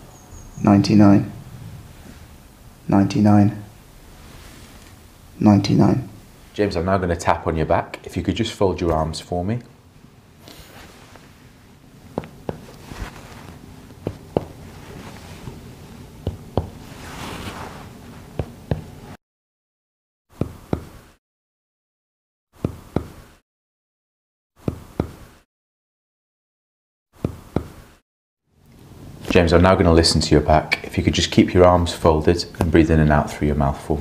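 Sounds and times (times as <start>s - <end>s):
finger tapping on back: 12.2s - 12.8s, 14.0s - 14.6s, 16.2s - 16.8s.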